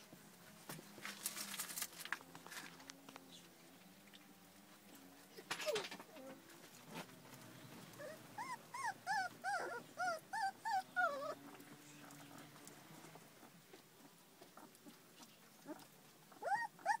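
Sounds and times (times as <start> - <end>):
puppies whimpering and yelping: 7.8 - 15.0, 15.6 - 17.0.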